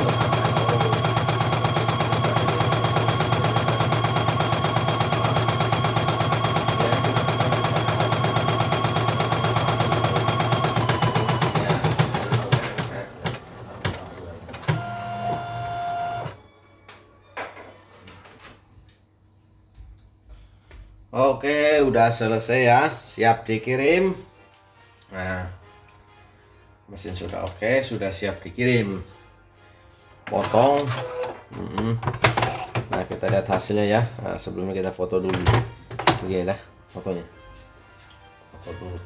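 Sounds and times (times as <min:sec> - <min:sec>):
embroidery machine stitching: 0:00.0 - 0:16.4.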